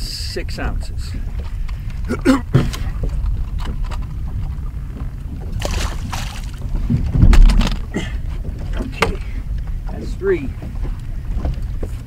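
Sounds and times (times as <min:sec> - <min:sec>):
wind rumbling on microphone: 0:00.0 - 0:12.0
water lapping against boat hull: 0:00.7 - 0:12.0
low thump of water surge: 0:05.5 - 0:07.9.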